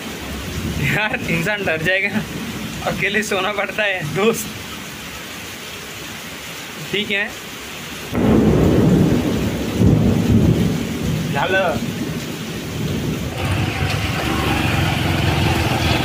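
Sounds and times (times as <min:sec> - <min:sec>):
heavy rain: 0:00.0 - 0:16.0
thunder rumbling: 0:08.1 - 0:16.0.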